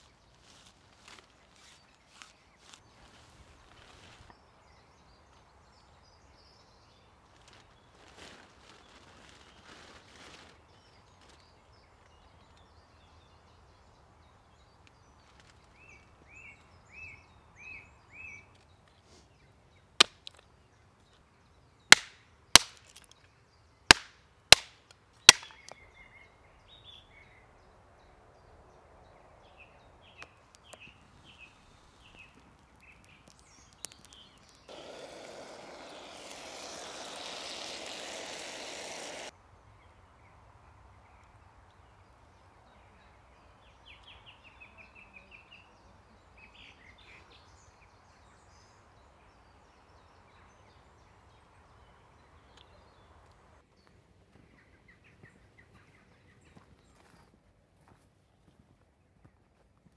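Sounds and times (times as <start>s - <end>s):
machete chopping wood: 22.0s - 23.0s, 23.9s - 25.7s, 34.7s - 39.3s
small bird chirping: 29.6s - 39.3s.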